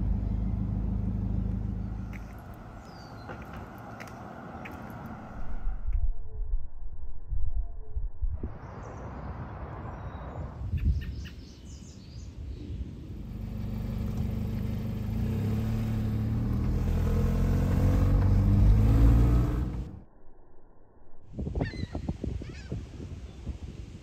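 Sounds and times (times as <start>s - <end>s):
car engine accelerating: 0.0s - 5.6s, 13.1s - 20.0s.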